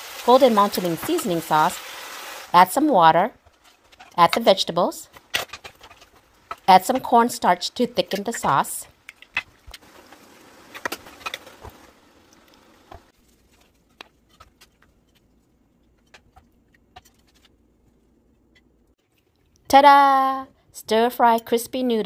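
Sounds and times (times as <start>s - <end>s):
stir-fry sizzling in a pan: 0.0s - 3.0s, 9.7s - 13.2s
wooden spatula stirring: 3.1s - 4.5s, 5.1s - 19.5s.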